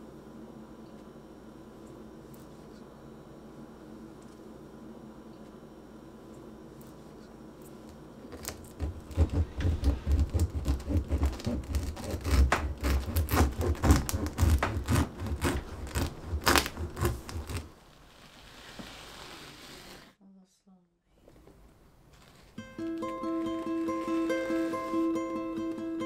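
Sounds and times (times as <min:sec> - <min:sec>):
knife cutting crisp bread crust: 0:08.4 - 0:17.7.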